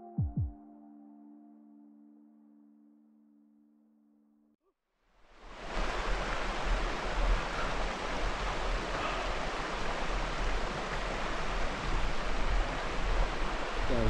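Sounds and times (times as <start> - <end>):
steady rushing hiss: 5.3 - 14.0.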